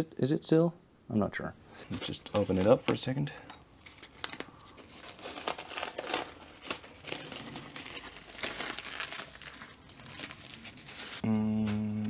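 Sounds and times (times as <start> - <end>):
plastic bag crinkling: 1.8 - 3.2, 3.8 - 11.2.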